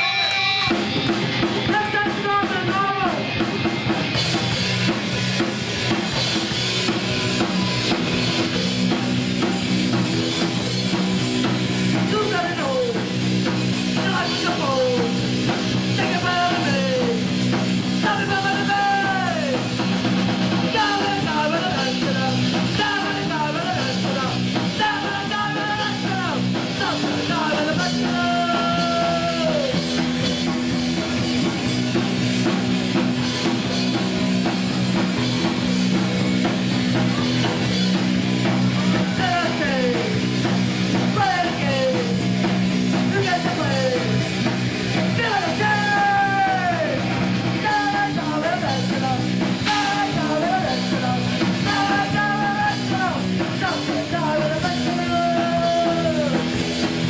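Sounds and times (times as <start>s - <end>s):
live punk rock band playing: 0.0s - 57.0s
shouted vocal: 45.1s - 47.1s.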